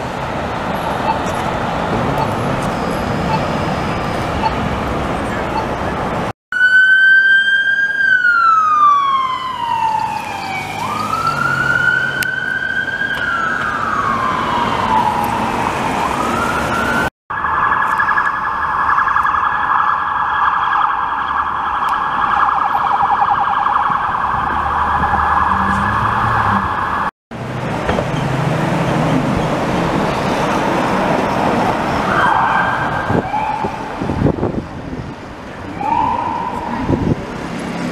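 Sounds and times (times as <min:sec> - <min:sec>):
traffic noise: 0:00.0 - 0:37.9
fast warbling siren: 0:06.5 - 0:27.1, 0:32.0 - 0:33.9, 0:35.7 - 0:37.1
police siren wailing: 0:06.5 - 0:27.1, 0:31.7 - 0:34.4, 0:35.6 - 0:37.2.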